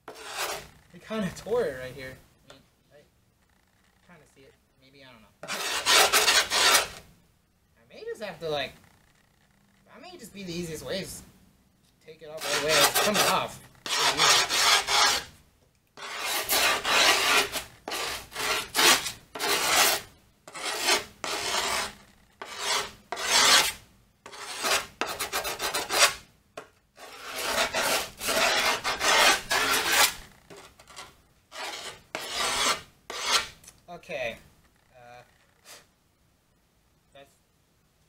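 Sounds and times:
file rasping on wood: 0.1s - 0.7s, 5.4s - 7.0s, 12.4s - 15.3s, 16.0s - 26.2s, 27.0s - 33.5s.

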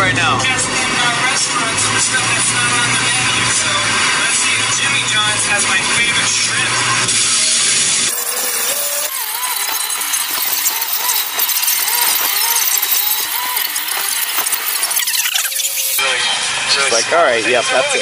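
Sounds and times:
wavering squeal: 8.1s - 16.1s.

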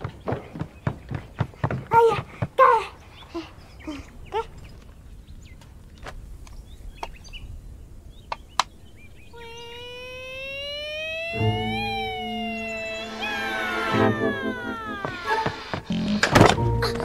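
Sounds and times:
birds chirping: 0.0s - 17.0s
rising musical note: 9.2s - 15.7s
soundtrack music: 11.4s - 15.6s.

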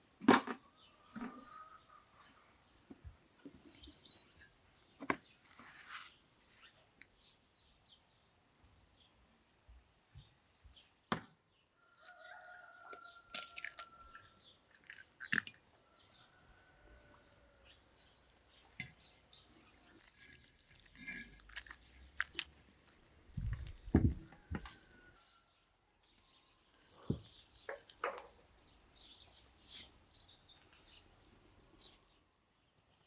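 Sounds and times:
rooster crowing: 11.9s - 14.4s.

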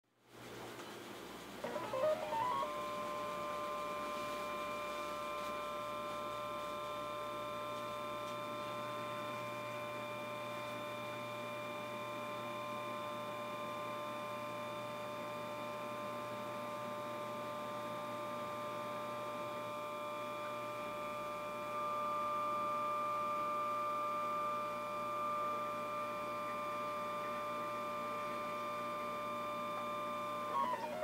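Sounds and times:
camera slider motor whining: 1.6s - 3.4s.

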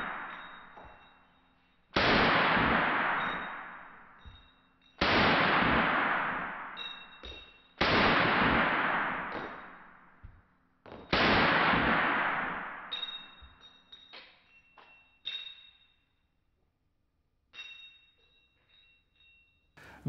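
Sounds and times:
rifle shots ringing out: 2.0s - 7.1s, 7.8s - 10.0s, 11.1s - 13.4s.

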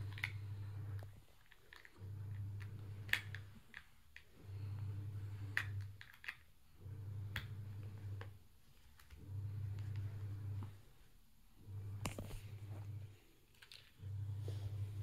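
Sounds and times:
plastic toy bricks clicking: 5.6s - 6.5s.

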